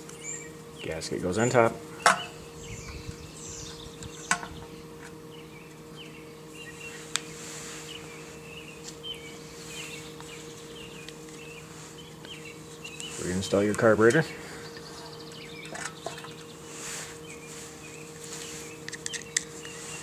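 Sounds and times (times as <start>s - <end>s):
birds chirping: 0.0s - 20.0s
low hum: 0.0s - 20.0s
clicks from handling small parts: 18.8s - 19.8s.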